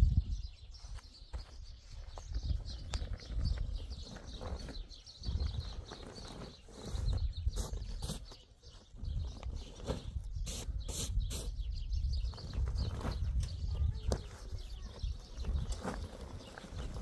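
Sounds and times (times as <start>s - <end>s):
birds chirping faintly: 0.0s - 17.0s
plastic tarpaulin rustling: 3.0s - 10.2s, 12.5s - 17.0s
tarpaulin crackles: 14.0s - 17.0s.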